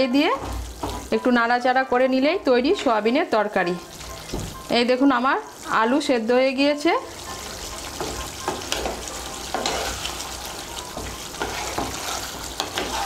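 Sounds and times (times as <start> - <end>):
curry sizzling in a pan: 0.0 - 13.0
spatula scraping a pan: 7.9 - 13.0.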